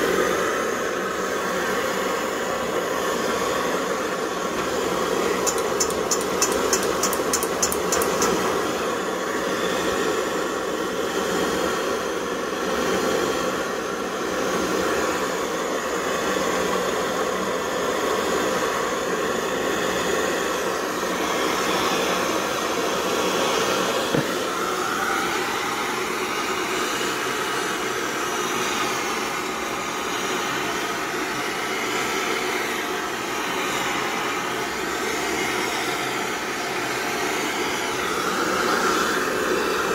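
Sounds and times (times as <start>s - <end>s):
stove burner hissing: 1.8s - 9.5s
quick run of clicks: 5.4s - 8.4s.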